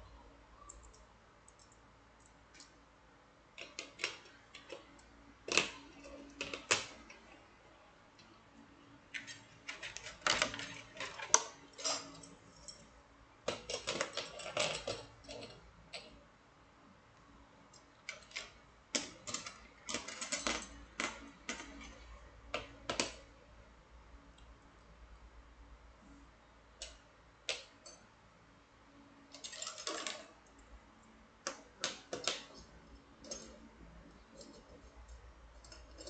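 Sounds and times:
metal wire puzzles clinking: 33.2 - 36.0.

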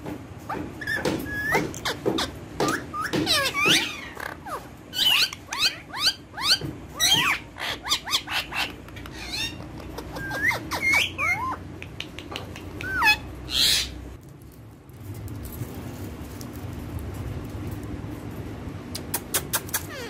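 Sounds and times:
parakeets chattering: 0.5 - 14.2, 19.1 - 20.0.

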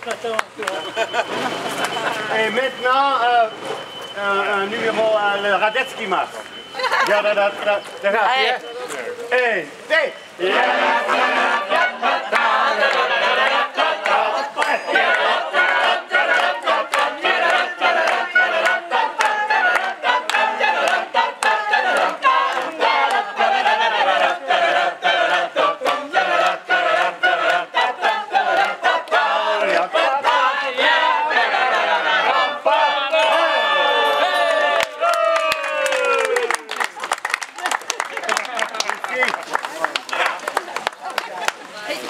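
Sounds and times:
people clapping in time: 0.0 - 2.7, 11.1 - 31.0, 33.1 - 41.8
crowd singing a birthday song: 0.8 - 5.1, 10.2 - 34.8.

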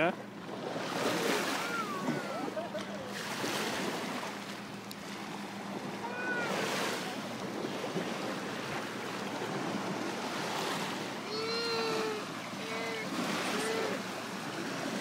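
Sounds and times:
small waves lapping: 0.0 - 15.0
wind: 0.0 - 15.0
faint voice: 6.0 - 6.6, 11.3 - 14.1.

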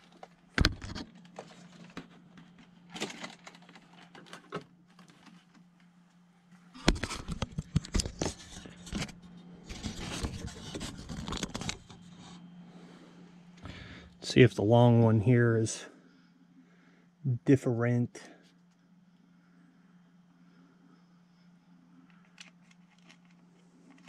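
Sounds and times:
faint low hum: 0.0 - 24.0
metal parts clicking and rattling: 2.9 - 4.6, 22.2 - 24.0
clatter and rubbing: 6.8 - 12.4.

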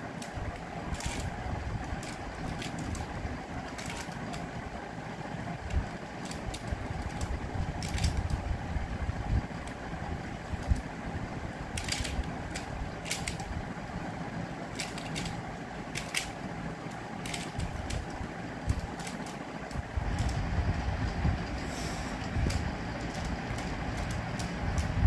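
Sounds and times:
steady low rumble: 0.0 - 25.0
plastic puzzle clicks: 0.1 - 4.5, 5.6 - 8.4, 11.7 - 13.6, 14.6 - 20.4, 22.2 - 25.0.

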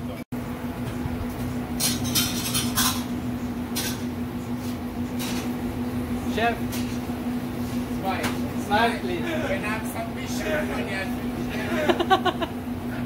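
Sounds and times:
steady hum: 0.0 - 13.0
plates and cutlery clinking: 1.8 - 3.1.

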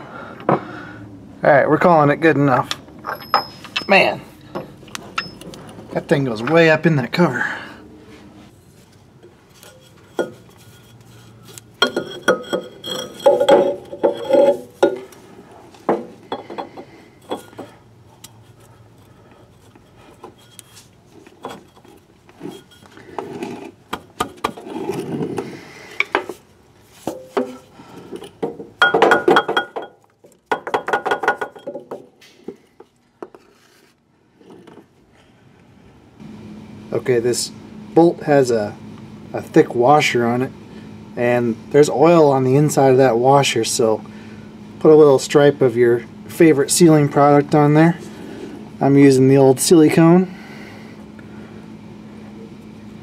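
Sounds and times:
metal parts clinking and clanking: 2.6 - 6.7, 9.6 - 15.2, 15.9 - 24.8.

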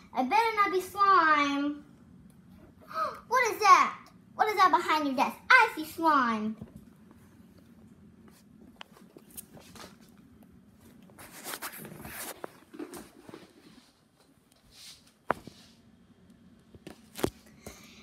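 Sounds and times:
rustling handling noise: 6.7 - 15.8.

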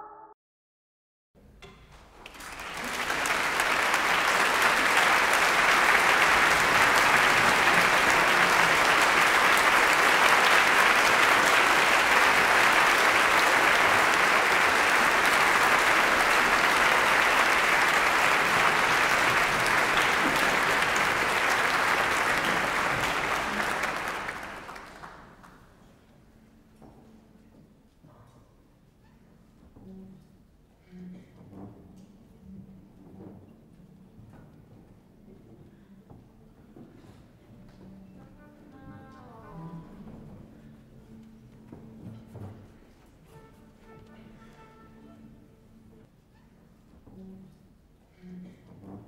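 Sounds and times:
audience applauding: 2.2 - 25.8.

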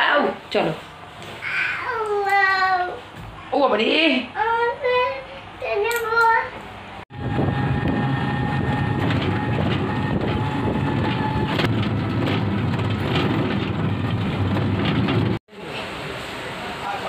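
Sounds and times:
vehicle interior rumble: 7.1 - 15.4
light rattles: 9.0 - 15.4.

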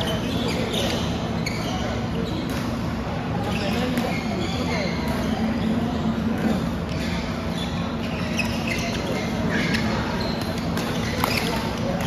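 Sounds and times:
shoe squeaks on court floor: 0.0 - 2.8, 3.4 - 12.0
faint hall chatter: 0.0 - 12.0
racket striking shuttlecock: 10.5 - 11.7.

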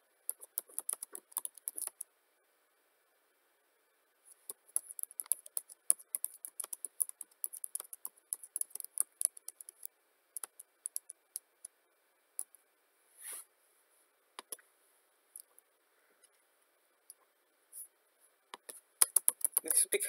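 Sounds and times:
typing on computer keyboard: 0.3 - 2.1, 4.3 - 11.7, 18.6 - 19.8.

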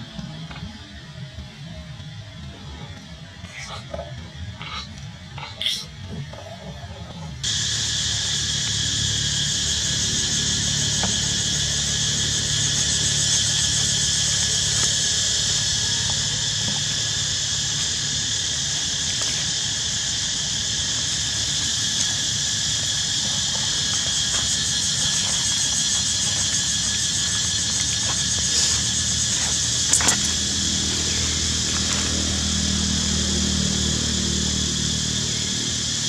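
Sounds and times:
insect chorus buzzing: 0.1 - 36.0
low hum: 7.4 - 36.0.

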